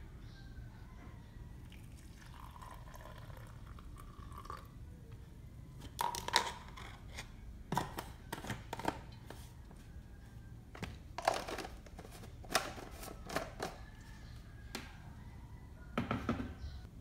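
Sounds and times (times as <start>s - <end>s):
water pouring into a glass mug: 1.7s - 4.7s.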